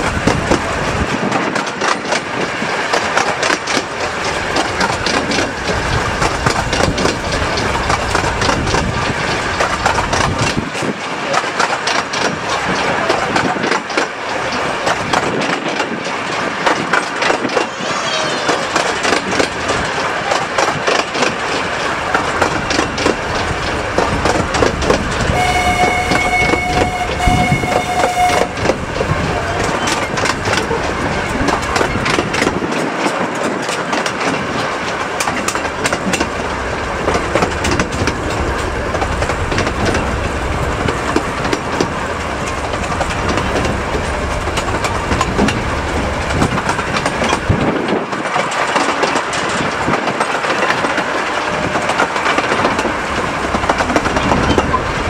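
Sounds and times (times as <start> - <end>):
train wheels clattering on rails: 0.0 - 55.0
train horn: 25.3 - 29.0.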